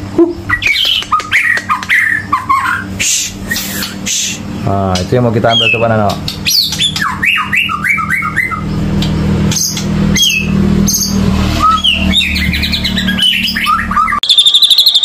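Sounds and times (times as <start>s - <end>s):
low steady hum: 0.0s - 14.2s
songbird whistling song: 0.2s - 4.4s, 5.4s - 15.0s
fast high chirps: 9.5s - 15.0s.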